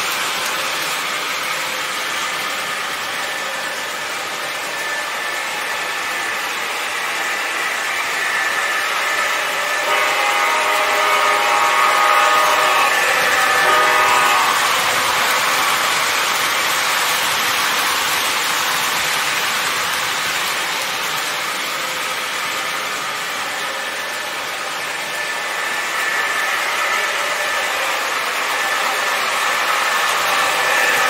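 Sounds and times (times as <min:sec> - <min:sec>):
model train wheels rumbling: 0:00.0 - 0:31.0.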